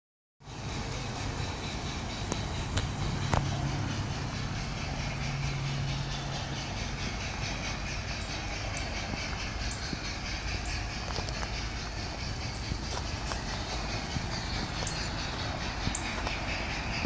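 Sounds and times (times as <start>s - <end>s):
model train running on track: 0.4s - 17.0s
low hum: 0.5s - 17.0s
sharp clicks: 2.2s - 3.6s.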